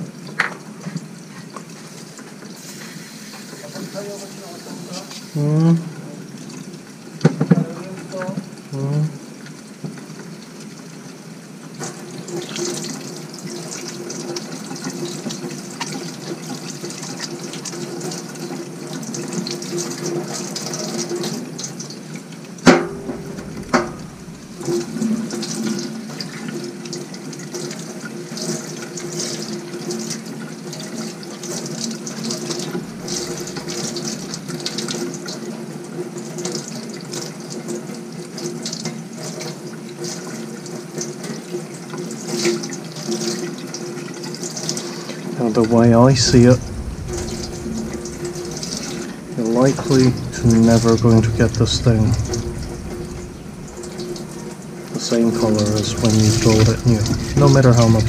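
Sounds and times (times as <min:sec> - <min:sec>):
tap water running into sink: 0:09.3 - 0:46.3.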